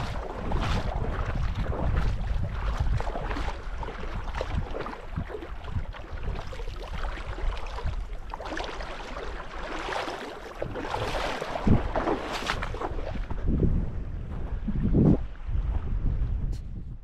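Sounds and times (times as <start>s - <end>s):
water rushing and splashing: 0.0s - 13.6s
wind buffeting microphone: 0.0s - 17.0s.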